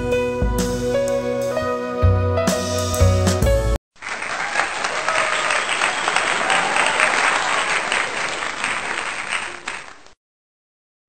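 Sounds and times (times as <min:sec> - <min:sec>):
crowd applauding: 0:04.0 - 0:10.2.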